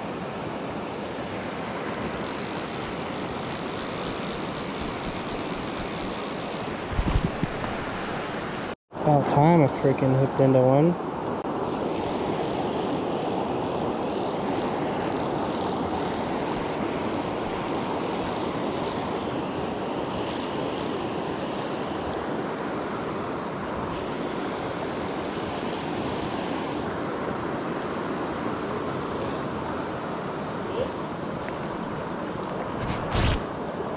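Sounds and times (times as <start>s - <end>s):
creek water rushing: 0.0s - 32.4s
rapid high-pitched pulsing: 1.9s - 6.8s, 11.5s - 19.1s, 20.0s - 21.9s, 25.2s - 26.6s.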